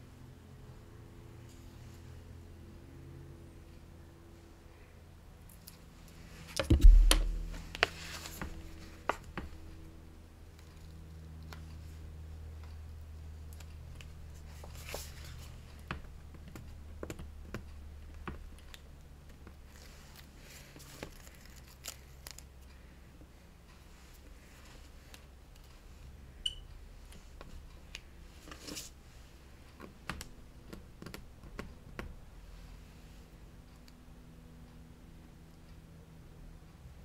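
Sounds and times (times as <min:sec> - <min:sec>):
loud thump: 0:06.6 - 0:07.8
taps and clicks: 0:06.6 - 0:07.9.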